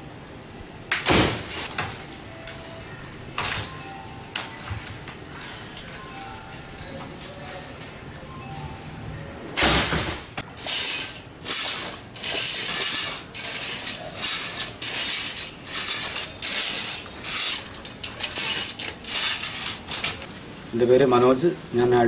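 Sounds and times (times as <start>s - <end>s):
metal climbing device clanking: 10.5s - 20.3s.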